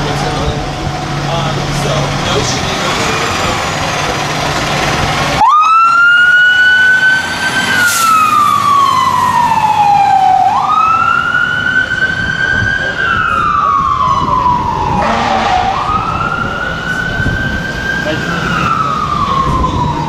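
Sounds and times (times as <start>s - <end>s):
fire engine running: 0.0s - 20.0s
siren wailing: 5.4s - 20.0s.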